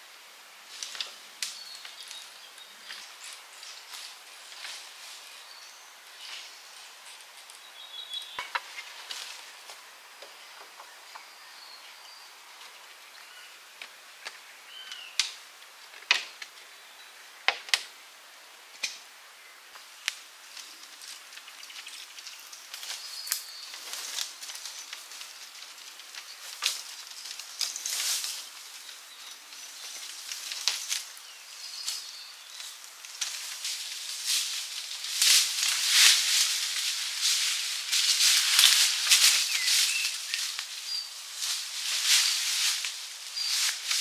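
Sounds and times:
crackling rustle: 0:00.0 - 0:44.0
sharp snaps and clicks: 0:13.8 - 0:15.4, 0:18.8 - 0:19.0.

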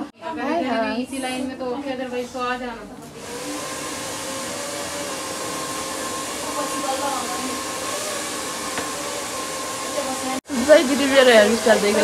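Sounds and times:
hair dryer running: 0:03.0 - 0:12.0.

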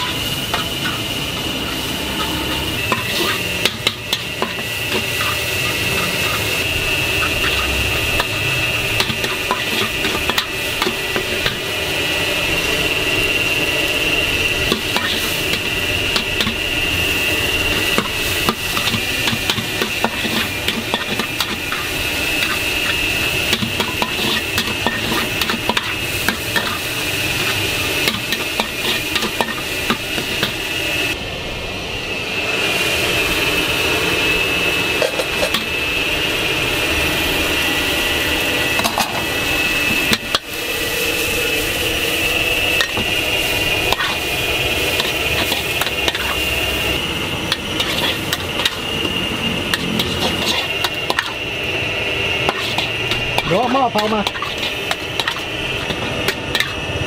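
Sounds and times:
meat sizzling in a wok: 0:00.0 - 0:57.0
metal spatula scraping a pan: 0:01.6 - 0:11.6, 0:14.6 - 0:16.6, 0:17.6 - 0:30.6, 0:43.6 - 0:46.6, 0:47.5 - 0:48.9, 0:49.7 - 0:51.4, 0:52.4 - 0:56.8.

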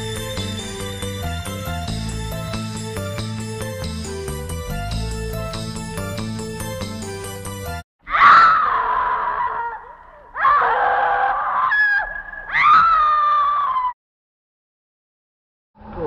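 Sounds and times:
person screaming: 0:08.1 - 0:13.9.

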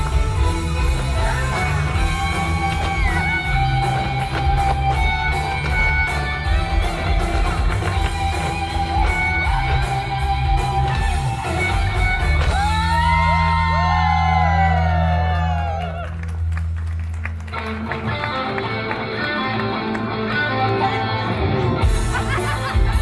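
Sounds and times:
rock backing music: 0:00.0 - 0:23.0
boots stamping footwork: 0:01.3 - 0:12.6.

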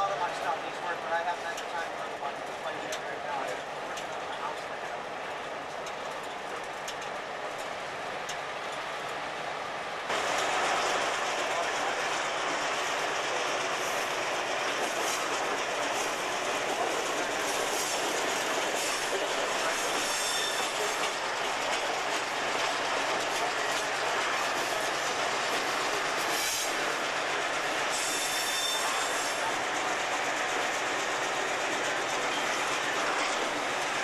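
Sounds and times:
train rolling on rails: 0:00.0 - 0:34.0
wheels clacking over rail joints: 0:02.4 - 0:09.2, 0:10.1 - 0:34.0
high-pitched wheel squeal: 0:20.1 - 0:20.8, 0:28.0 - 0:29.4.

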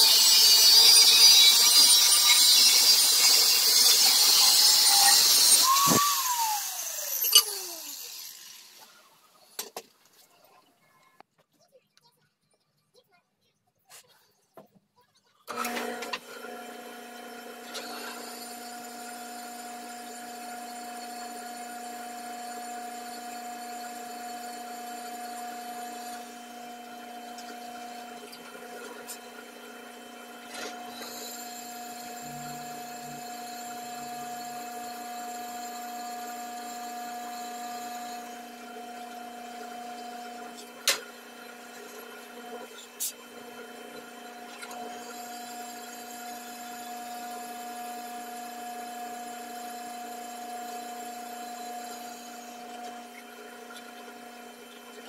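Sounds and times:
drill bit cutting steel: 0:00.0 - 0:09.0, 0:15.6 - 0:55.0
drill press motor hum: 0:00.0 - 0:09.1, 0:15.5 - 0:55.0.

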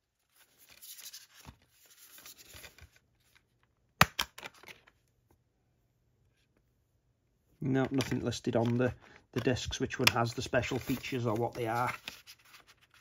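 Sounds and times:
paper rustling: 0:00.2 - 0:03.4, 0:07.9 - 0:13.0.

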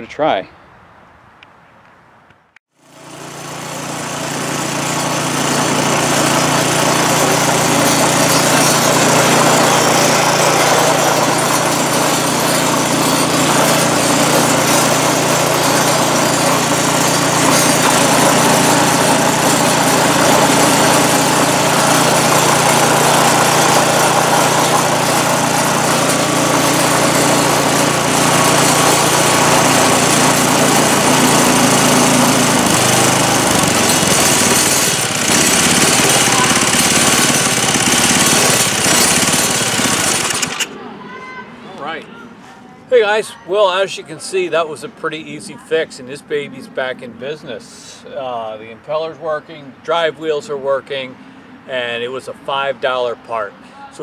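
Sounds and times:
snowblower engine running: 0:02.8 - 0:40.8.

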